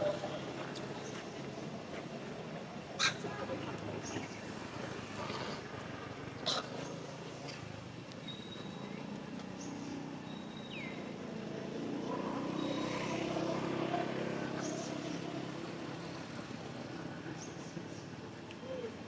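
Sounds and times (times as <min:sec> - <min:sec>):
bird chirps: 0:08.2 - 0:09.0
vehicle engine passing: 0:11.0 - 0:17.2.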